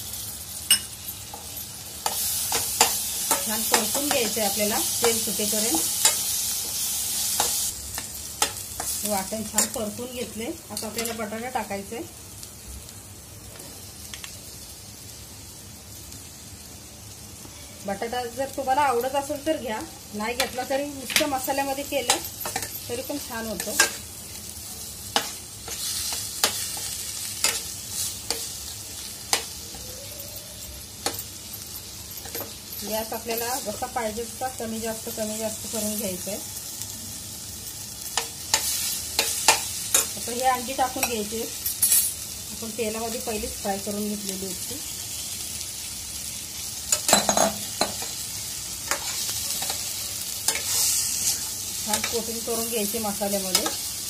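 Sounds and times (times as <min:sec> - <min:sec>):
food sizzling in a pan: 0:00.0 - 0:54.0
metal spatula scraping a pan: 0:48.9 - 0:52.1.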